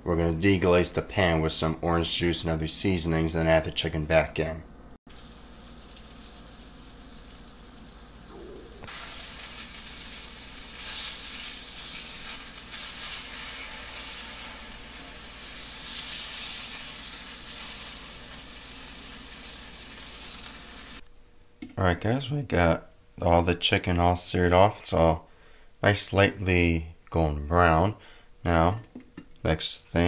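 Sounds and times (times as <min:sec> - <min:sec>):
chicken frying in hot oil: 0:05.1 - 0:21.0.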